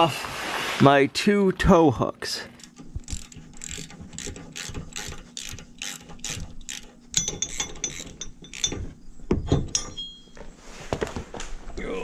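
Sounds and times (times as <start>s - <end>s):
socket ratchet clicking: 2.6s - 8.9s
ringing metal clinks: 7.2s - 9.0s, 9.7s - 10.4s.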